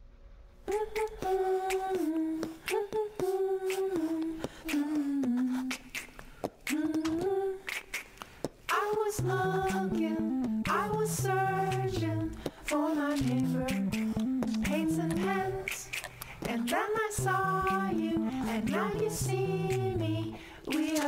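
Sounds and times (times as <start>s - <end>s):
sharp clicking percussion: 3.7s - 21.0s
hummed melody: 8.7s - 21.0s.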